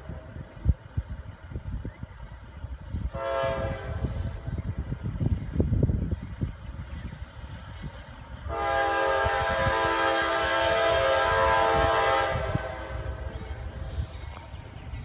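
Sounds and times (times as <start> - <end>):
low train rumble: 0.0 - 15.0
locomotive air horn blast: 3.1 - 4.4, 8.5 - 13.2.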